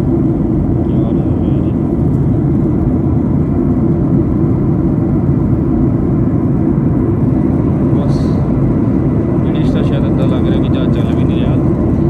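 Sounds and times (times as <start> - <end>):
jet airliner cabin roar: 0.0 - 12.0.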